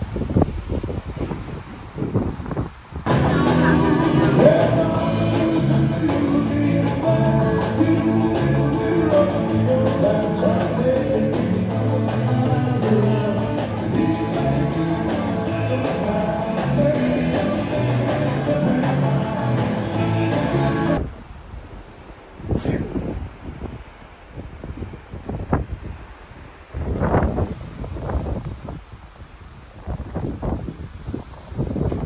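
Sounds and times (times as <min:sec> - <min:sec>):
drums: 0:02.5 - 0:21.0
guitars: 0:03.1 - 0:21.0
keyboard: 0:03.1 - 0:21.0
person singing: 0:03.1 - 0:21.0.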